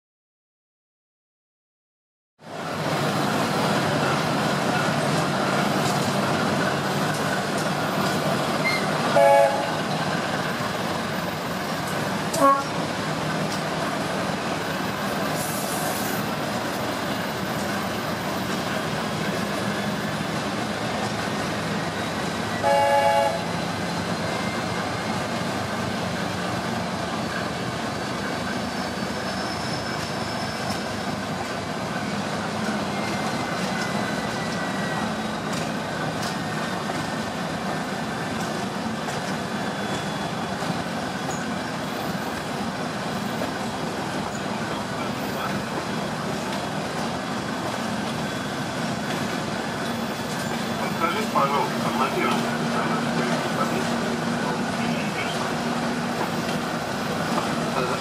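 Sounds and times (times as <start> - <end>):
moving train running noise: 2.4 - 58.0
train horn toot: 8.7 - 9.8, 12.3 - 12.8, 22.6 - 23.6.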